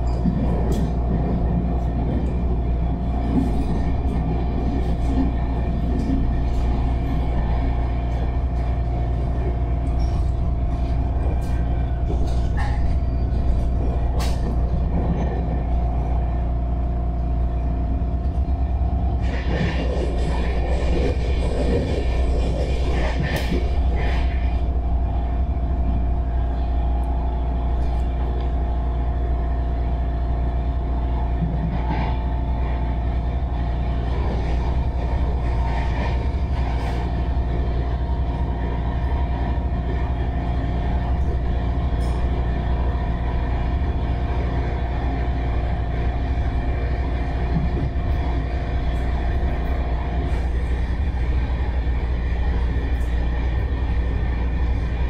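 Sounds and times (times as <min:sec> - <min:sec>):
constant hum-like tone: 0:00.0 - 0:55.0
train running rumble: 0:00.0 - 0:55.0.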